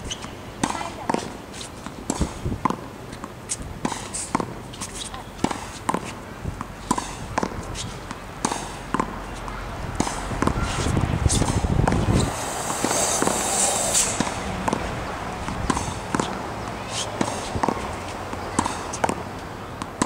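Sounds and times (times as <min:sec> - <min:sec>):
racket striking tennis ball: 0:00.1 - 0:20.0
rushing noise: 0:10.1 - 0:17.5
ball hitting wall and bouncing: 0:11.4 - 0:16.4.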